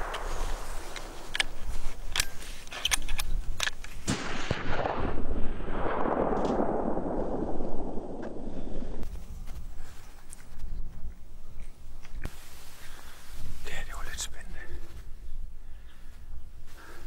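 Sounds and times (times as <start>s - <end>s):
rustling noise: 0.0s - 4.1s, 7.2s - 15.4s.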